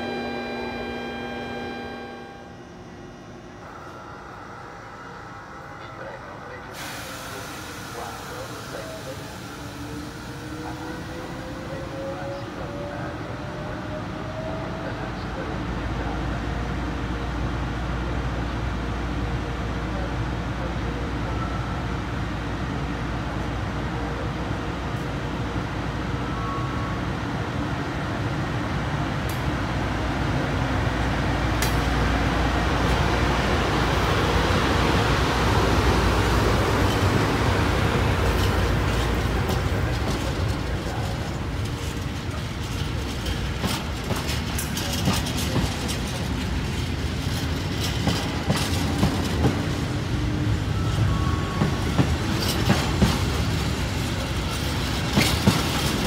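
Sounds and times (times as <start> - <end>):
electric locomotive hum: 0.0 - 20.1, 20.9 - 56.0
train wheels clicking over rail joints: 36.7 - 49.9, 51.6 - 56.0.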